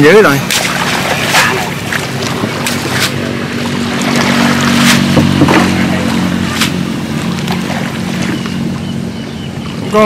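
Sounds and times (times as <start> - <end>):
boat engine running: 0.0 - 10.0
sharp knocks: 4.8 - 5.8.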